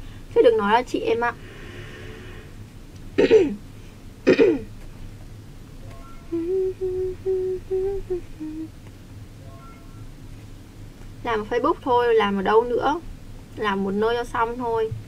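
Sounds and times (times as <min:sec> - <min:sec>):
woman humming: 0:06.3 - 0:08.7.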